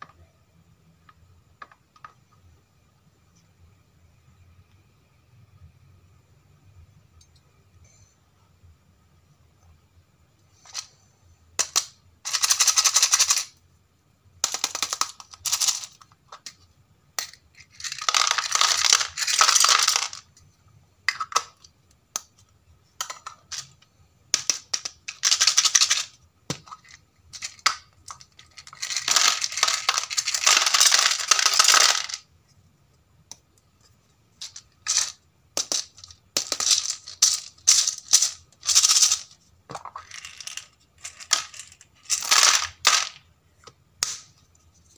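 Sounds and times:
plastic pieces rattling in capsules: 0:11.6 - 0:13.6, 0:14.4 - 0:16.6, 0:17.2 - 0:20.3, 0:23.0 - 0:32.3, 0:34.4 - 0:43.2.

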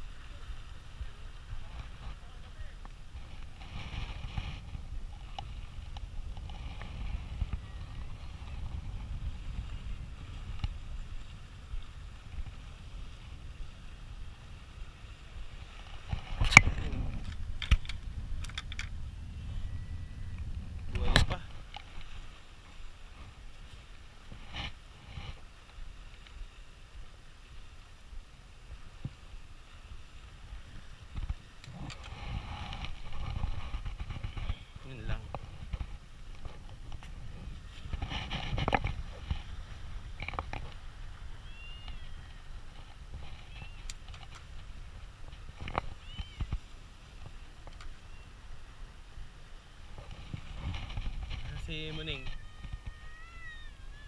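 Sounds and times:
wind buffeting microphone: 0:00.0 - 0:54.0
light clicks: 0:47.6 - 0:47.9.

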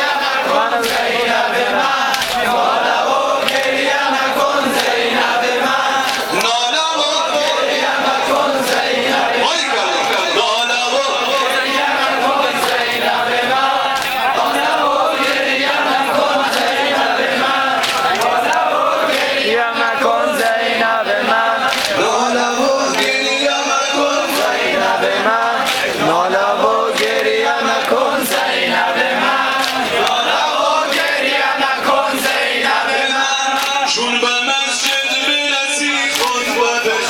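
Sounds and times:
men chanting a lament: 0:00.0 - 0:37.0
chest-beating slaps: 0:02.1 - 0:02.5, 0:13.9 - 0:14.6, 0:17.8 - 0:19.4, 0:21.6 - 0:22.0.

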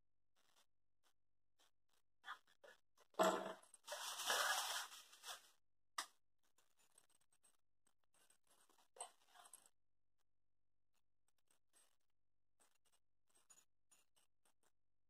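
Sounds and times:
rustling and scratching: 0:03.6 - 0:05.6.

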